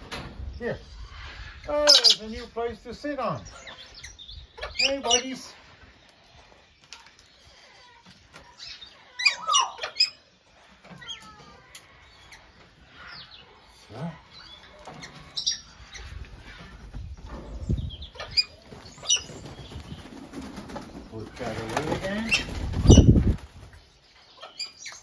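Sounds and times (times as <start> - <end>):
cockatoos squeaky calls: 8.6 - 10.3.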